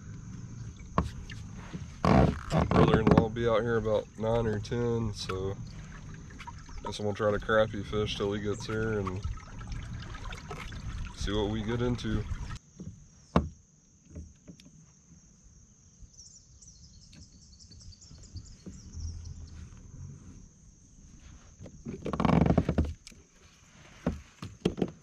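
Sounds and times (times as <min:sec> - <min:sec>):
insect chirring: 0:00.0 - 0:23.6
loud rough rustle: 0:19.6 - 0:25.0.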